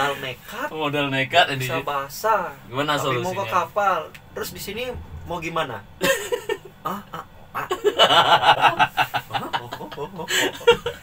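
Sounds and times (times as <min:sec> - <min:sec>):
laughter: 0:06.0 - 0:11.0.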